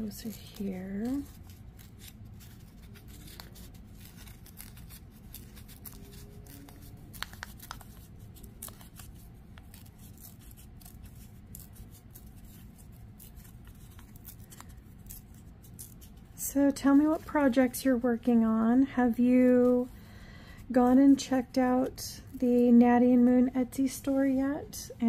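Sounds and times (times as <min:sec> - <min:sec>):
paper rustling: 0:00.0 - 0:18.2
low room hum: 0:00.0 - 0:25.0.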